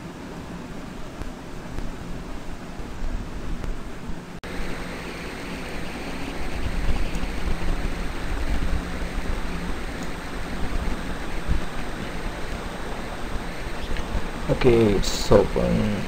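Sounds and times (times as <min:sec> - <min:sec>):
low hum: 0:00.0 - 0:16.0
rushing background noise: 0:00.0 - 0:16.0.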